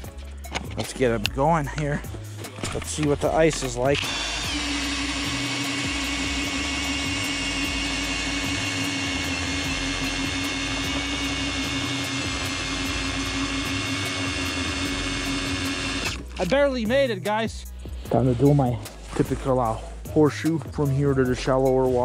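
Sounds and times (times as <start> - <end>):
drill motor whine: 2.9 - 16.4.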